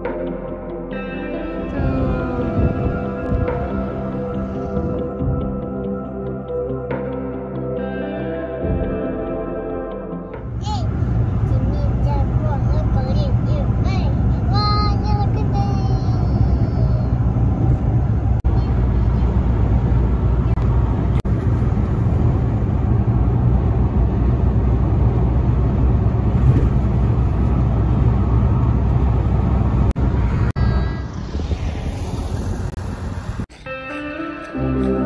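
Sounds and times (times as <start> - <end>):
street ambience: 0.0 - 8.0, 10.3 - 35.0
music: 0.0 - 10.8, 33.6 - 35.0
car cabin road rumble: 1.8 - 5.6, 10.4 - 33.5.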